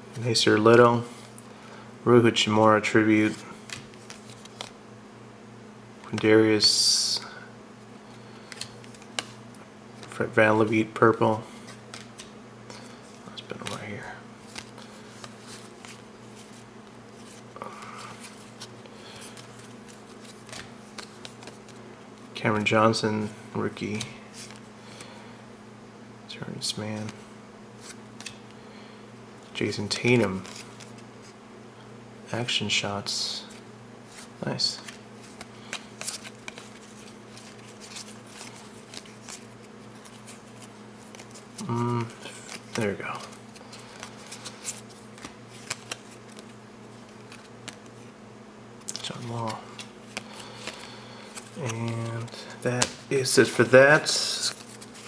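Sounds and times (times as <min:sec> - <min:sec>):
faint steady hum: 0:00.0 - 0:55.0
cards sliding and flicking: 0:03.3 - 0:04.8, 0:08.4 - 0:09.4, 0:11.5 - 0:22.3, 0:27.8 - 0:28.6, 0:30.2 - 0:31.0, 0:33.4 - 0:48.1, 0:48.8 - 0:55.0.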